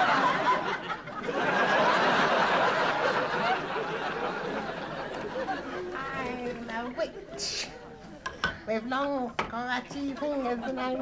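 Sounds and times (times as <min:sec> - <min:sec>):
audience laughing: 0:00.0 - 0:07.6.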